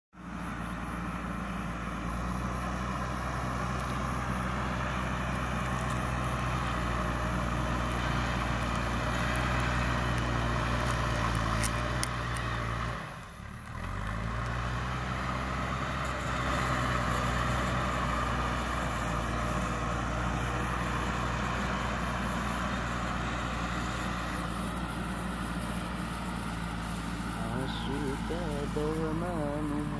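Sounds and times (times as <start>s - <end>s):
diesel engine under load: 0.2s - 29.9s.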